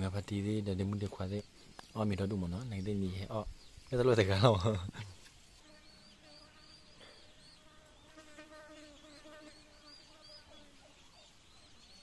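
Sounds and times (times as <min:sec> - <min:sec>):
faint high chirps: 0:00.8 - 0:12.0
flying insect buzzing: 0:05.5 - 0:10.8.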